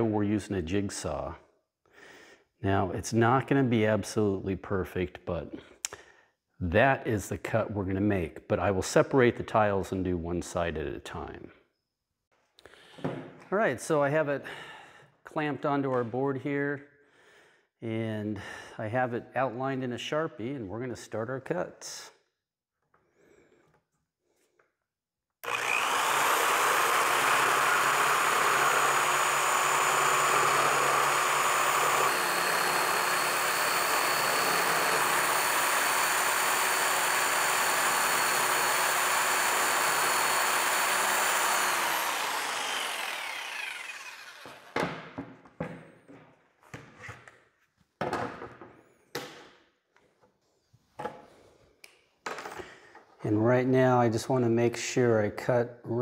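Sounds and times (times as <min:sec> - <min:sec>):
jigsaw cutting plastic: 0:25.4 - 0:44.8.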